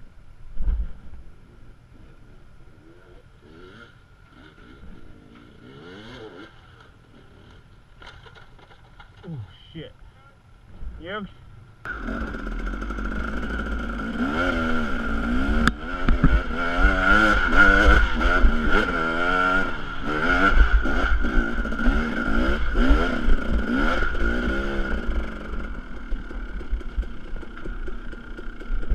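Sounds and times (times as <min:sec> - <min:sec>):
dirt bike engine revving: 0:02.7 - 0:08.1, 0:11.9 - 0:28.9.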